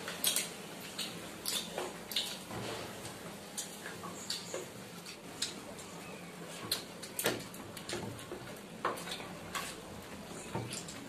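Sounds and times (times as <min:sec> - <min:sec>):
chewing and lip smacks: 0:00.1 - 0:02.5, 0:03.5 - 0:07.2
fingers working rice on plates: 0:03.9 - 0:11.0.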